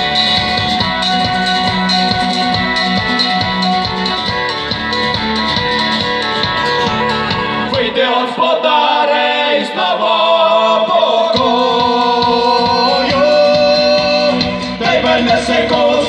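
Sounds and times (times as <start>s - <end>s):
folk-rock band playing: 0.0s - 8.2s, 11.2s - 16.0s
several voices singing: 7.3s - 16.0s.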